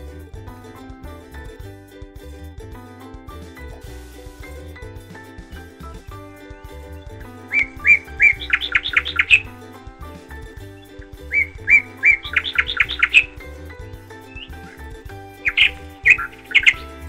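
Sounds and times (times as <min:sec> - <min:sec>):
background music: 0:00.0 - 0:17.0
bird-like chirping phrase: 0:05.5 - 0:09.6, 0:10.7 - 0:13.5, 0:14.2 - 0:17.0.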